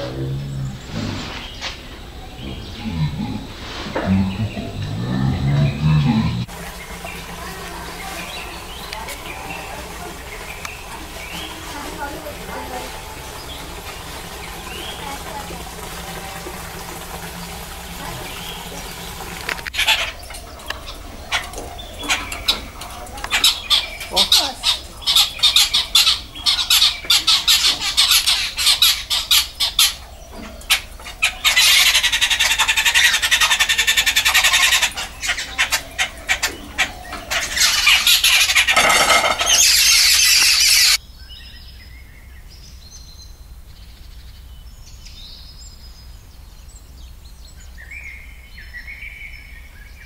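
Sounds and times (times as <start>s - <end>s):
babblers chattering and squawking: 0.0s - 41.0s.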